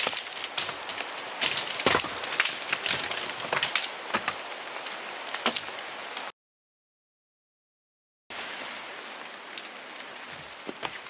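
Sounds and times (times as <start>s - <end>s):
tent poles clicking and knocking: 0.0s - 5.8s, 9.3s - 11.0s
steady rain falling: 0.0s - 6.3s, 8.3s - 11.0s.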